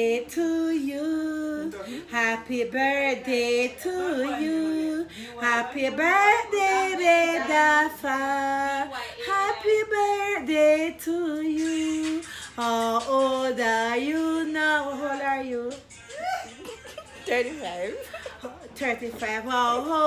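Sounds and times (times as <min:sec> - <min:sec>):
woman singing unaccompanied: 0:00.0 - 0:16.0, 0:16.9 - 0:20.0.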